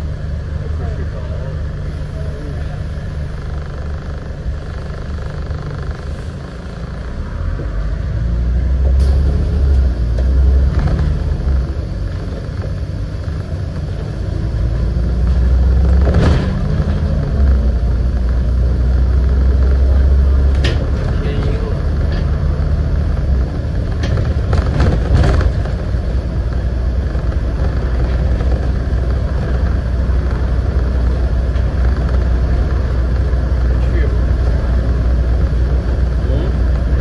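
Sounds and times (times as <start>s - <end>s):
bus engine droning: 0.0s - 37.0s
sharp knocks and rattles: 23.4s - 33.4s.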